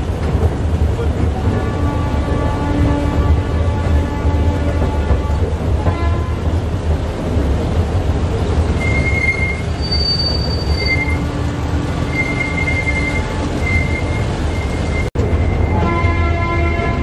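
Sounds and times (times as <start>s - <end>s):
train wheels squealing: 8.8s - 11.2s, 12.0s - 15.8s.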